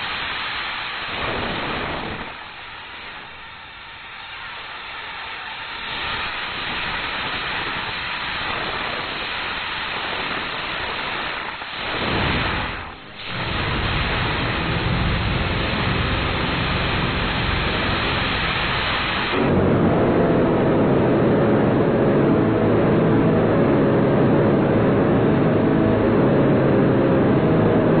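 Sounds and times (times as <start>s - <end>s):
loud distorted static noise: 0.0s - 28.0s
deep distorted rumble: 5.8s - 28.0s.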